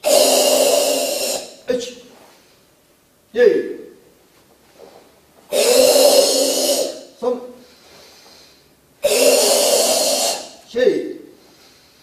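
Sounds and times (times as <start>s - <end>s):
forceful throaty breath: 0.0s - 1.6s, 5.5s - 10.6s
person shouting: 5.5s - 7.4s.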